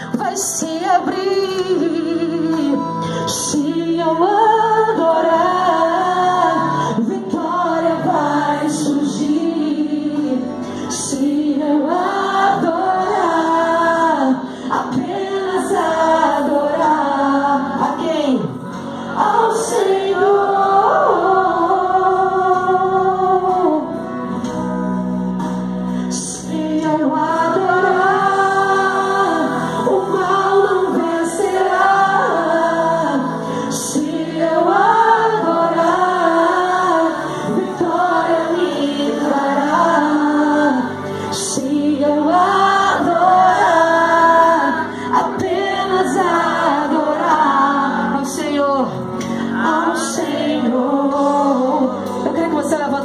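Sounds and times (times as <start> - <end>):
woman singing a hymn: 0.0 - 24.2, 26.0 - 53.0
singer breathing: 14.4 - 14.7, 18.7 - 19.2, 33.4 - 33.7, 44.8 - 45.1, 49.1 - 49.6.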